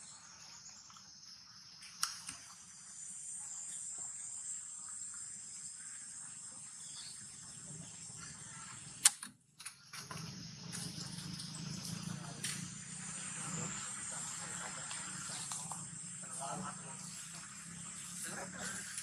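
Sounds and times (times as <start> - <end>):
high-pitched insect chorus: 0.0 - 9.0, 9.7 - 19.0
sharp click: 9.0 - 10.9.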